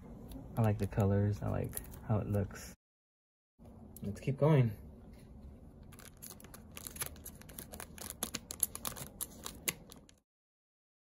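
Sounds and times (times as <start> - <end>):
foil bag crinkling: 5.8 - 10.2.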